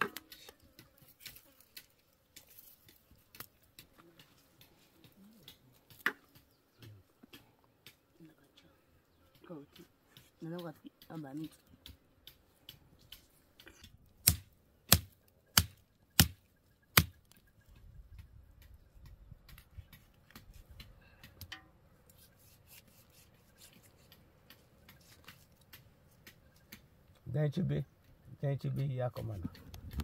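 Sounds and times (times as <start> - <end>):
faint scattered clicks: 24.0 - 30.0.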